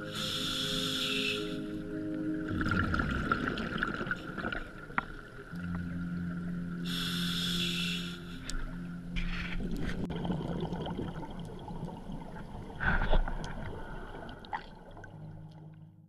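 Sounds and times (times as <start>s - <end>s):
underwater bubbles rumbling: 2.4s - 6.5s, 9.3s - 15.7s.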